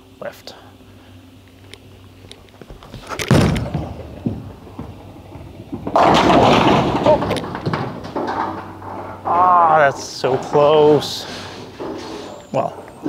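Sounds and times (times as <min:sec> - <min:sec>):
bowling ball rolling rumble: 0:02.5 - 0:13.0
ball crashing into pins: 0:02.7 - 0:12.3
bowling ball thud on lane: 0:03.3 - 0:09.4.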